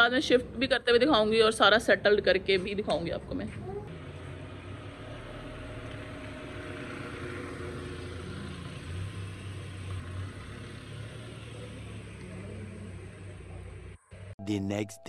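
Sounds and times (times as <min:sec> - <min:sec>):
car engine low hum: 0:03.9 - 0:14.4.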